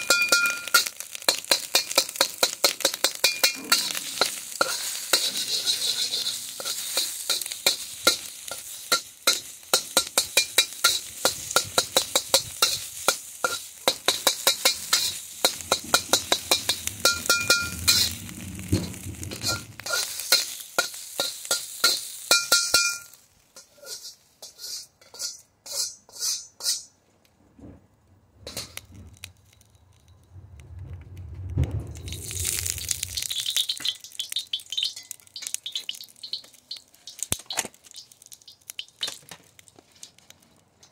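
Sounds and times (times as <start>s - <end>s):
food sizzling: 0.0s - 26.9s, 31.5s - 40.9s
metal spatula scraping a wok: 0.0s - 27.0s, 28.4s - 30.0s
low rumble: 29.9s - 33.4s.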